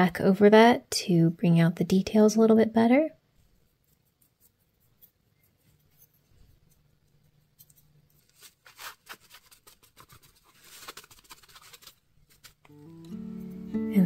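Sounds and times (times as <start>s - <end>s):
paper towel rubbing on plastic: 8.2s - 12.7s.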